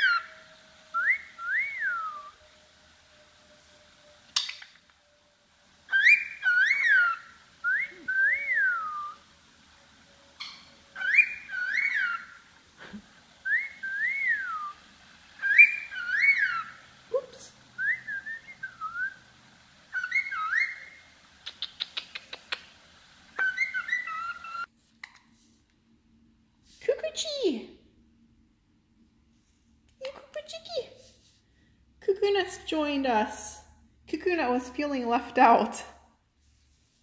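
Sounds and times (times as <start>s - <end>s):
cockatiel whistling: 0.0s - 2.4s, 5.9s - 9.2s, 10.4s - 12.4s, 13.4s - 14.8s, 15.4s - 16.8s, 17.8s - 19.2s, 19.9s - 21.0s, 23.4s - 24.7s
bird clicks: 21.5s - 22.7s.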